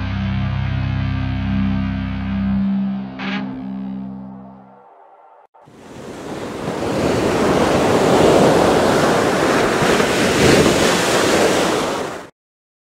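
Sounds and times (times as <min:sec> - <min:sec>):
ocean surf rushing: 0:05.6 - 0:12.3
wind on microphone: 0:05.7 - 0:12.2.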